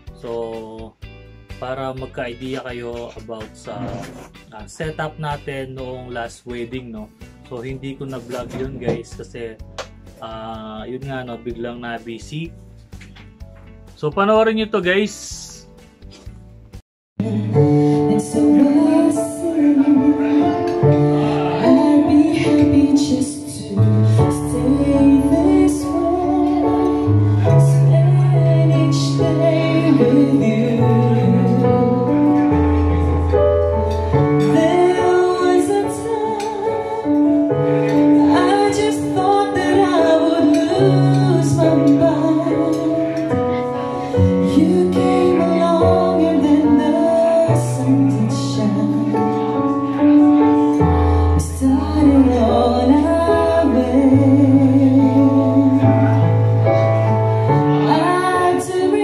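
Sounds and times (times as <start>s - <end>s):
woman singing into microphone: 17.2s - 33.2s, 34.2s - 59.0s
backing track: 17.2s - 59.0s.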